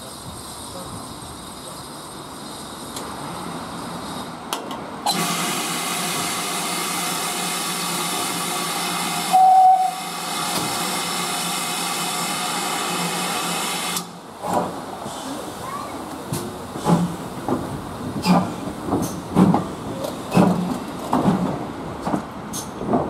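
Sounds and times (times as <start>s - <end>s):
steam hissing from locomotive: 5.1s - 14.1s
loud single-pitched tone: 9.3s - 10.1s.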